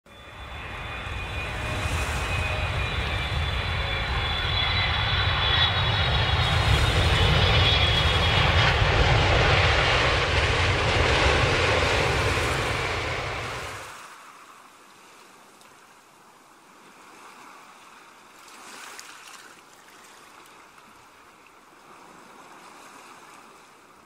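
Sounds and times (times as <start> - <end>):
high whine dropping in pitch: 0.1 - 13.9
airliner engine rumble: 0.1 - 14.2.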